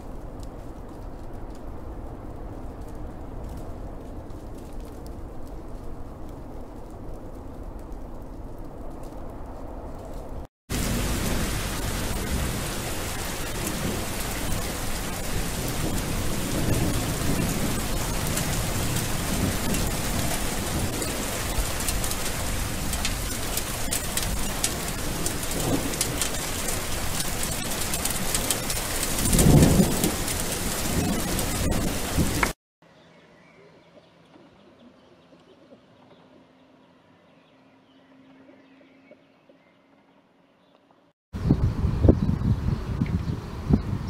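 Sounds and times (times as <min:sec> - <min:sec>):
thunder rumbling: 0:00.0 - 0:32.6
heavy rain: 0:10.7 - 0:32.6.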